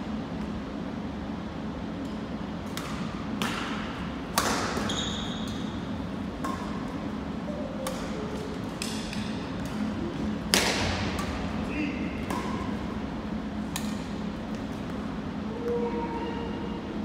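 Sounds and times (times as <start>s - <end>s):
steady low hum: 0.0s - 17.0s
badminton racket hitting shuttlecock: 2.7s - 4.9s, 7.8s - 11.5s.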